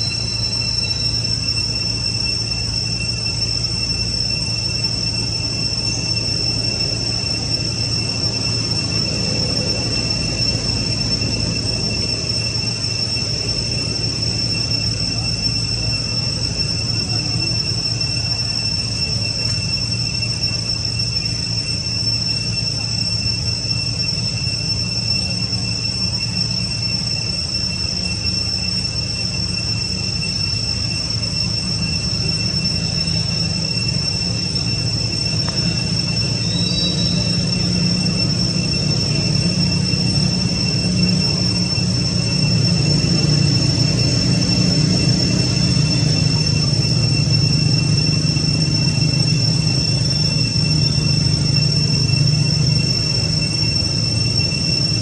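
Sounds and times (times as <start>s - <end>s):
forest insects droning: 0.0s - 55.0s.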